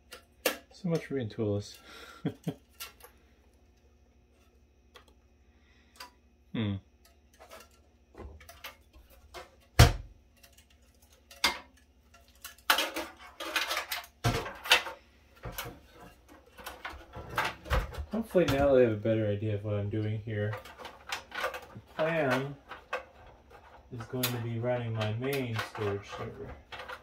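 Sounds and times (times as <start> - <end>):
metal clattering and scraping: 7.2 - 27.0.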